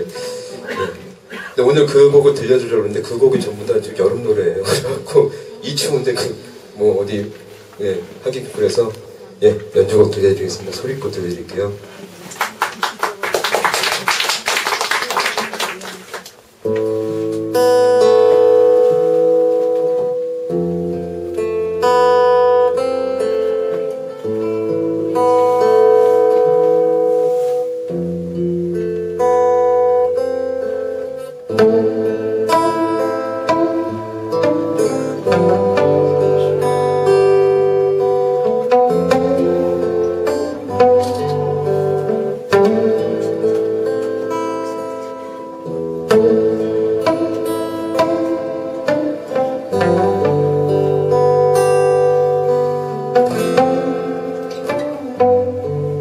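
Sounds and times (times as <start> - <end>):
acoustic guitars strumming: 0.0 - 12.6, 16.0 - 56.0
audience clapping: 12.2 - 16.5.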